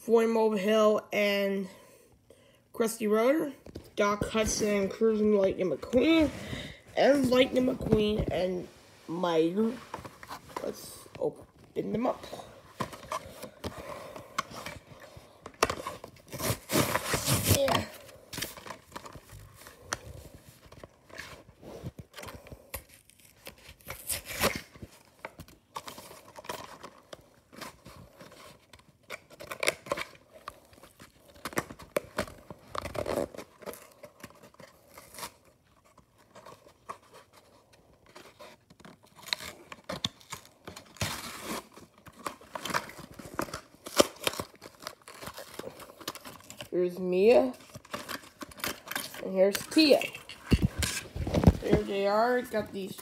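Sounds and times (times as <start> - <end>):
cardboard packaging tearing: 15.5 - 53.0.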